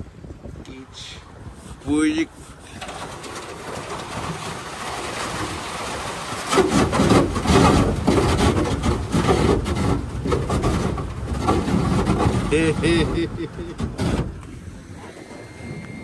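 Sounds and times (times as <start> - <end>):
boat motor running: 6.0 - 16.0
boat hull knocking on water: 6.5 - 14.4.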